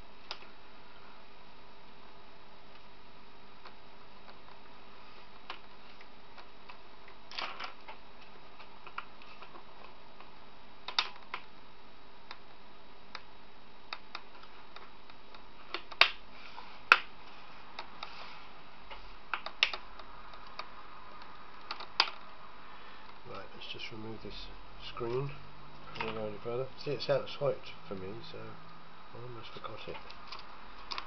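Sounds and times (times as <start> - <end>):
plastic clicks and snaps: 8.6 - 11.6, 13.9 - 16.2, 19.3 - 22.3, 29.9 - 31.0.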